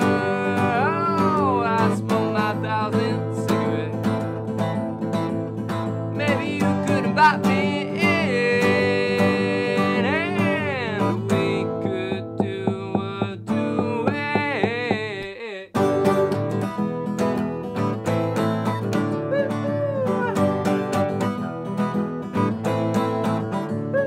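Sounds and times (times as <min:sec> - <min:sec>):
man singing: 0:00.0 - 0:04.4, 0:06.1 - 0:16.5
strummed acoustic guitar: 0:00.0 - 0:24.0.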